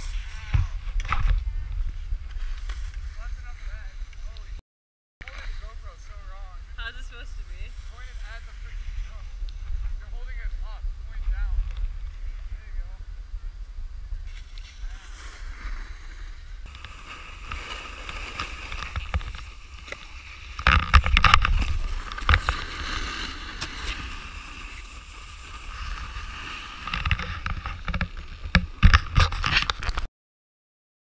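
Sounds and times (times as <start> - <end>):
snowboard scraping over snow: 0.0 - 4.4, 14.1 - 29.6
wind rumbling on microphone: 0.0 - 4.6, 5.2 - 30.1.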